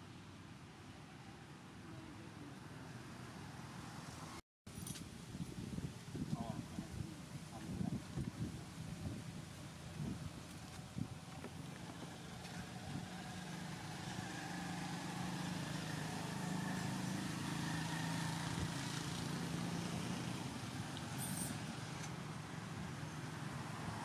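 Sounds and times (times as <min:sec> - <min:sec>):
distant vehicle engine hum: 0:06.8 - 0:24.0.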